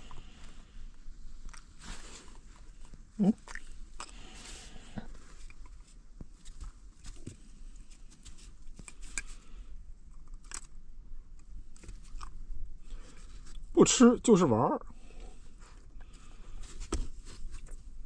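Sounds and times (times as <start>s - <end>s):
rustling on fabric bedding: 0.0s - 3.1s
dog crunching biscuit: 10.1s - 10.8s, 11.7s - 12.4s.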